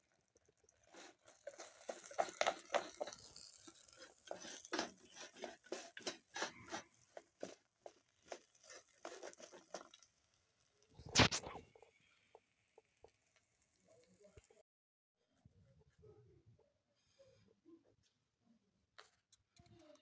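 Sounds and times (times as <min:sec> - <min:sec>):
hand mixing food in metal bowl: 0:00.0 - 0:12.0.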